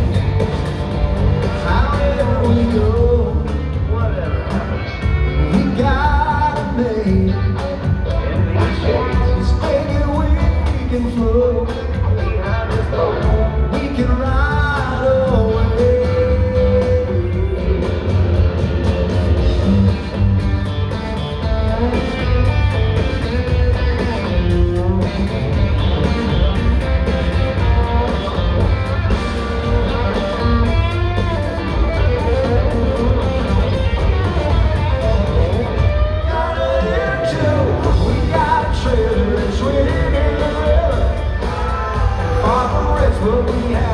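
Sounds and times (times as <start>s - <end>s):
live country-rock band: 0.0s - 43.9s
man singing lead vocal: 1.4s - 18.4s, 35.4s - 43.9s.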